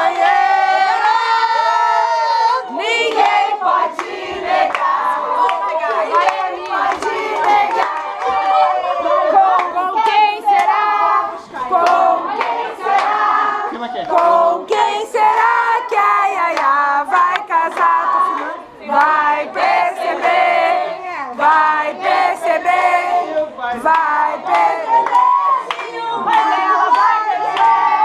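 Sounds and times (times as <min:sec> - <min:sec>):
group of people singing: 0:00.0 - 0:28.0
hands clapping: 0:03.0 - 0:08.7, 0:09.5 - 0:10.8, 0:11.7 - 0:19.2, 0:23.9 - 0:28.0.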